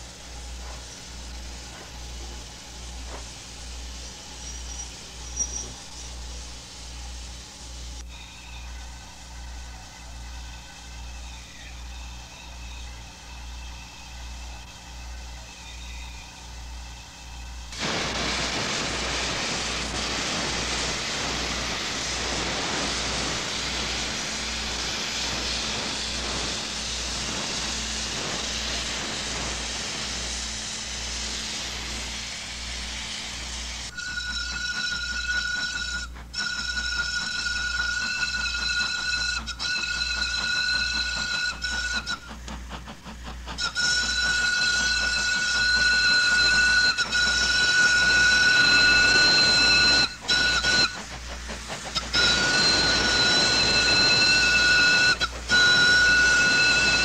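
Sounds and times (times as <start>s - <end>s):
steam hissing: 0.0s - 57.0s
steam whistle blasts: 33.9s - 42.4s, 43.6s - 51.1s, 51.9s - 57.0s.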